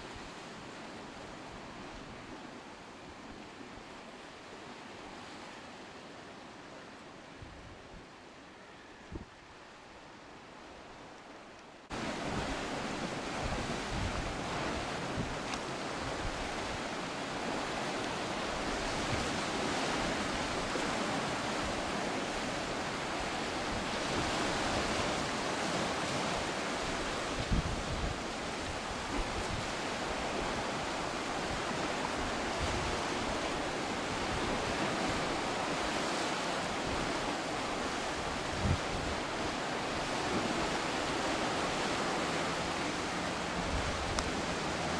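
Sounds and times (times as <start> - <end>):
surf washing over rocks: 0.0 - 44.9
wind on microphone: 9.0 - 9.5, 11.9 - 44.9.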